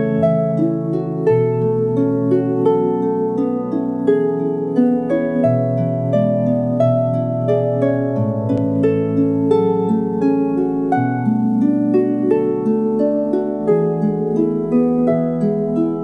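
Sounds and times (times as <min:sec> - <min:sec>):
lyre plucked melody: 0:00.0 - 0:16.0.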